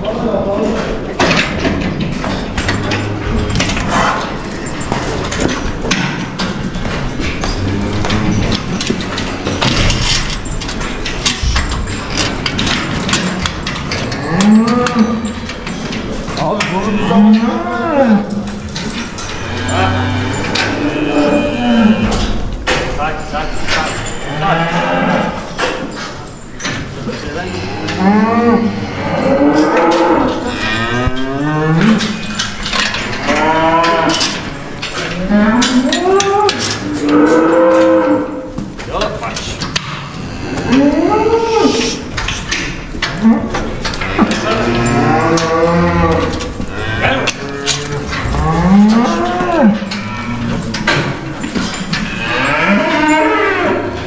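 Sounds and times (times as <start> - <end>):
cattle mooing: 7.5 - 8.6, 13.8 - 15.5, 16.6 - 18.6, 19.2 - 22.4, 27.4 - 38.5, 40.1 - 42.1, 43.0 - 54.0.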